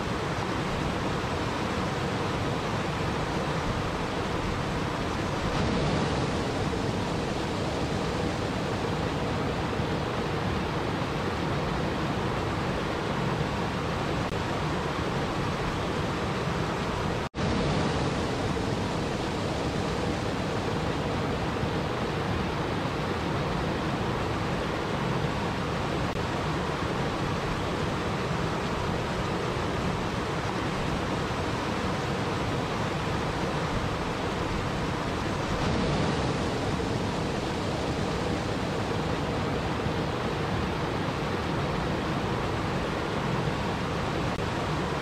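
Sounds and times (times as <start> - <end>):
waterfall rushing and splashing: 0.0 - 45.0.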